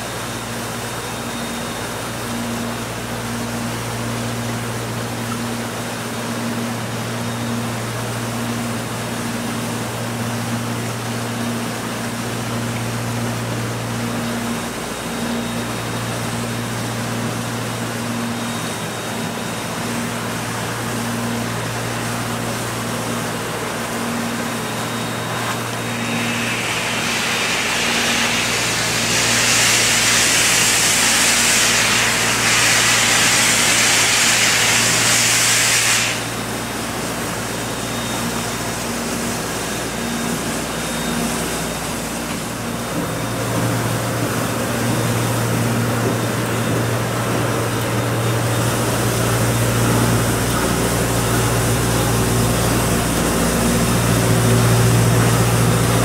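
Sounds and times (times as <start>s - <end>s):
steam locomotive running: 20.0s - 56.0s
steam venting hiss: 25.2s - 37.5s.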